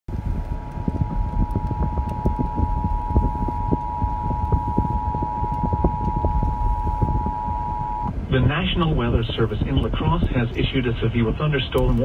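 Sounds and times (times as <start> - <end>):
crackling reception noise: 0.1 - 12.0
two-tone alert signal on car radio: 1.0 - 8.1.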